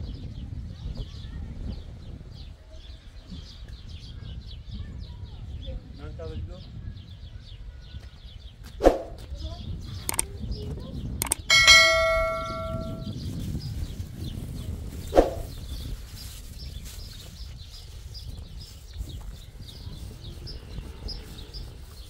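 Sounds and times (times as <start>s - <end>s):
metal clang ringing: 11.2s - 13.1s.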